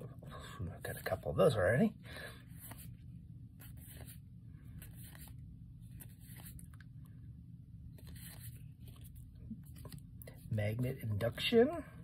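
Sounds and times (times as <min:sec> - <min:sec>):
low steady hum: 0:00.0 - 0:12.0
cards sliding and flicking: 0:02.5 - 0:03.0, 0:03.6 - 0:06.9, 0:07.9 - 0:10.1.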